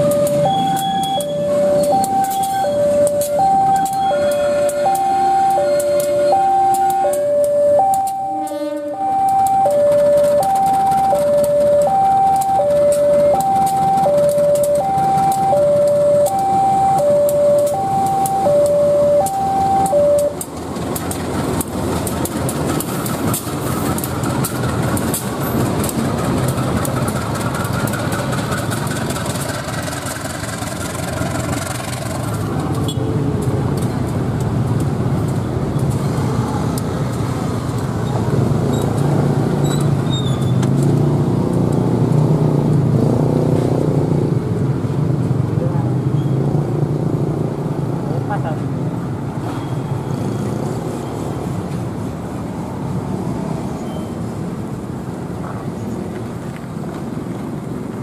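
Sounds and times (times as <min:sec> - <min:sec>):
two-tone crossing alarm: 0:00.0 - 0:20.6
locomotive engine rumbling: 0:00.0 - 0:41.6
wheels clicking over rails: 0:00.0 - 0:43.0.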